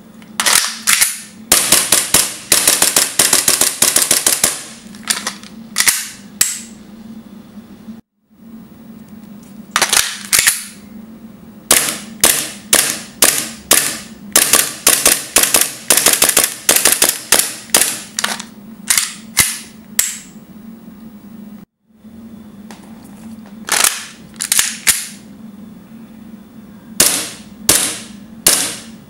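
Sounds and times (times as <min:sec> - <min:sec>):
airsoft pistol shots: 0:11.7 - 0:18.0, 0:27.0 - 0:28.9.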